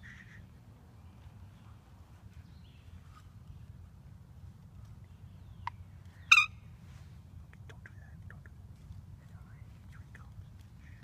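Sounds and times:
low steady rumble: 0:00.0 - 0:11.0
turkey yelping: 0:06.3 - 0:06.6.

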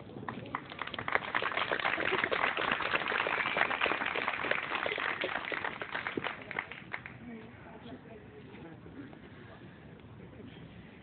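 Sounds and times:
audience clapping: 0:00.0 - 0:07.2.

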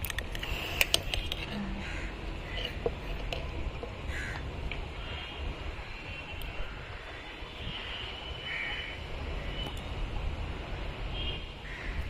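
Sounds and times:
crow cawing: 0:01.8 - 0:02.8, 0:04.1 - 0:04.4, 0:06.6 - 0:09.6, 0:11.6 - 0:12.0.

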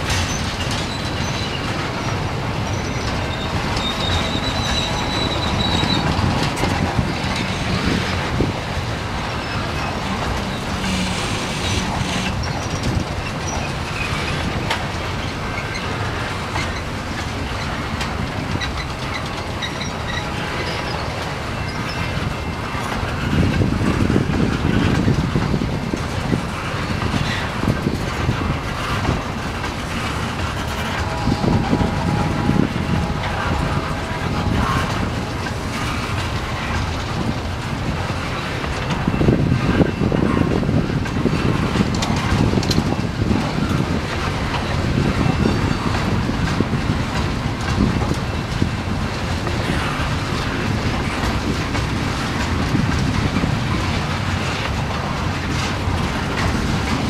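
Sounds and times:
train wheels rumbling and clattering: 0:00.0 - 0:57.0
faint high wheel squeal: 0:00.1 - 0:08.2, 0:18.6 - 0:22.8.

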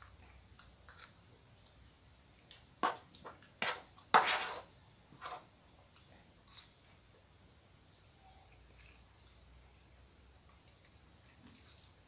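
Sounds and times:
cutlery scraping a plate: 0:03.6 - 0:05.4.

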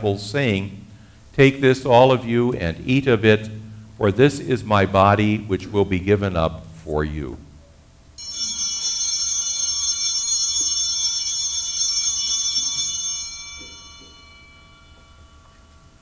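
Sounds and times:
bells jingling: 0:08.2 - 0:16.0.

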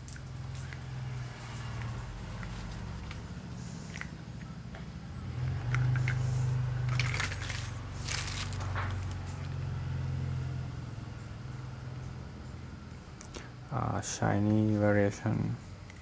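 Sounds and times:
bubble wrap crackling: 0:06.9 - 0:09.5.

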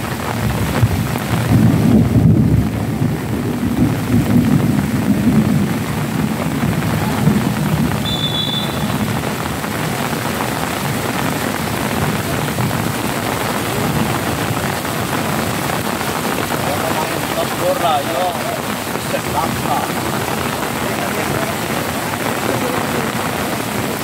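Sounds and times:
steady rain: 0:00.0 - 0:24.0
low rumble of thunder: 0:00.3 - 0:08.0.

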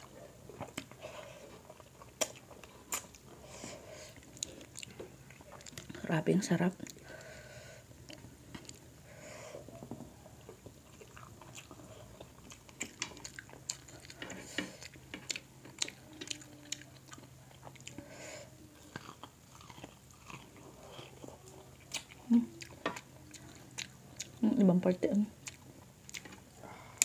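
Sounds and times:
chewing and mouth sounds: 0:00.0 - 0:03.4, 0:04.0 - 0:07.3, 0:08.0 - 0:08.9, 0:09.7 - 0:27.0.

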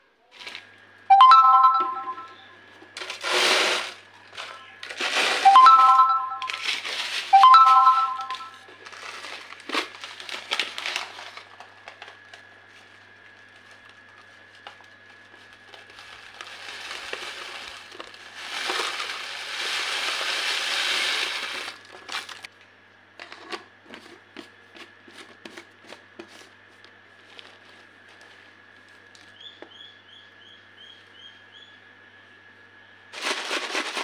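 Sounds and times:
dry snack pouring into plastic jar: 0:03.0 - 0:07.5, 0:15.8 - 0:22.4, 0:33.2 - 0:34.0
paper crinkling: 0:06.5 - 0:07.4, 0:08.7 - 0:22.5, 0:27.1 - 0:29.2.

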